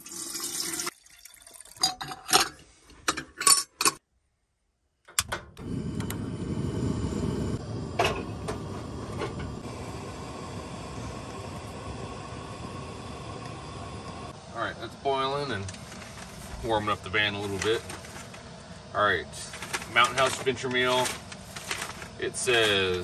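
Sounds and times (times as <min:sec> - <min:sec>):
metal pot and lid clinking: 0:01.8 - 0:04.0
camp stove burner hissing: 0:05.6 - 0:23.0.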